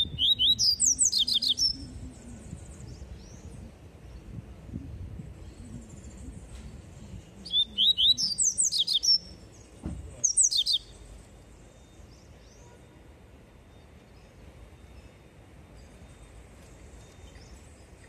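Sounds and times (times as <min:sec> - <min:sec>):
bird singing high whistled notes: 0:00.0 - 0:03.5, 0:05.4 - 0:09.4, 0:10.2 - 0:11.0.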